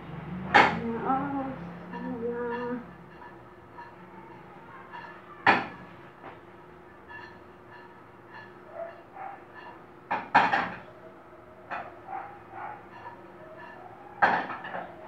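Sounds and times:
pan knocking on metal grate: 0:10.1 - 0:10.8.

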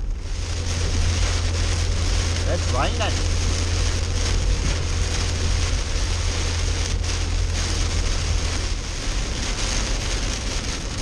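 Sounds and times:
heavy rain on car windshield: 0:00.0 - 0:11.0
low road and engine rumble: 0:00.0 - 0:11.0.

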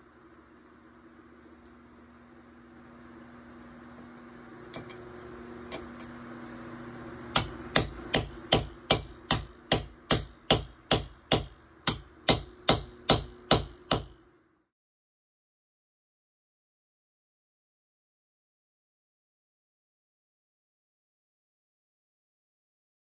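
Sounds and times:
hammer striking chisel on concrete: 0:07.3 - 0:14.2.

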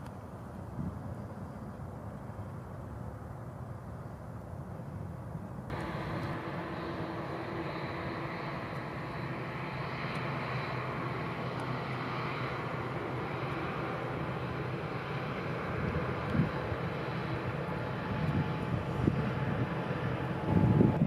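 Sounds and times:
faint high whine: 0:05.7 - 0:21.0
jet engines running: 0:05.7 - 0:21.0.

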